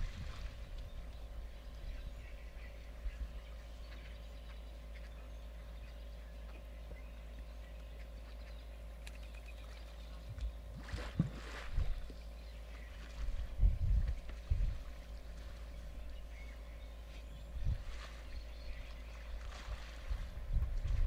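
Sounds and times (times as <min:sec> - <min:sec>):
water splashing and sloshing: 0:00.0 - 0:01.1, 0:09.0 - 0:16.2, 0:17.1 - 0:21.0
steady low rumble: 0:00.0 - 0:21.0.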